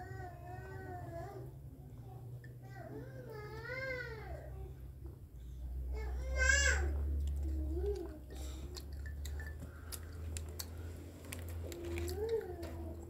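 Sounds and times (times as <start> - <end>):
low steady hum: 0.0 - 13.0
young child's high vocal sounds: 5.9 - 8.4.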